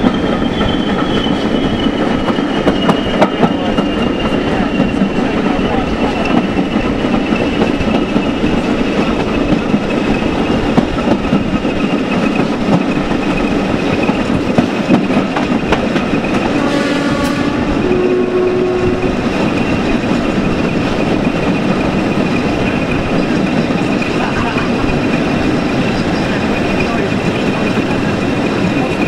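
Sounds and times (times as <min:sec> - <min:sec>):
diesel locomotive engine and wheels: 0:00.0 - 0:29.0
two-note train horn: 0:16.4 - 0:19.2.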